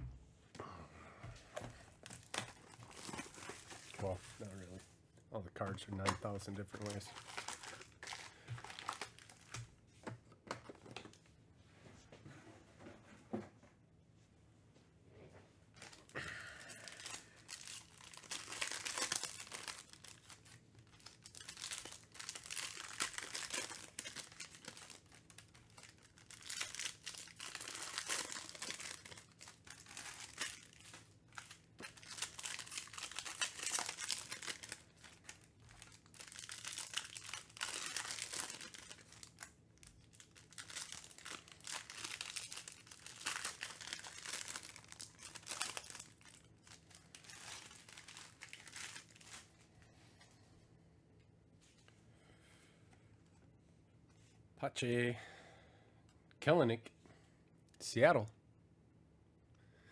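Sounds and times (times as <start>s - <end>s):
foil wrappers crinkling and tearing: 1.9s - 4.8s, 5.7s - 9.7s, 15.8s - 49.6s.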